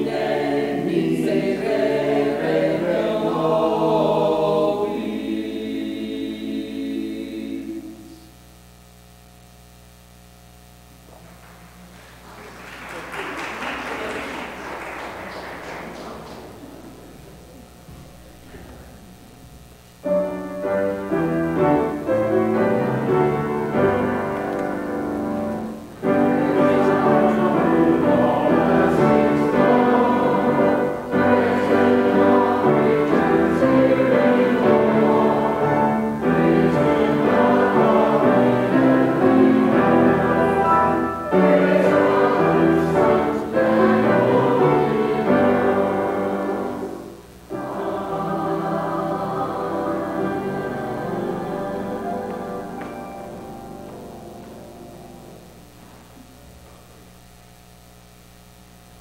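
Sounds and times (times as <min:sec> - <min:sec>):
voices singing a hymn: 0:00.0 - 0:08.2, 0:20.1 - 0:55.7
keyboard accompaniment: 0:20.0 - 0:56.1.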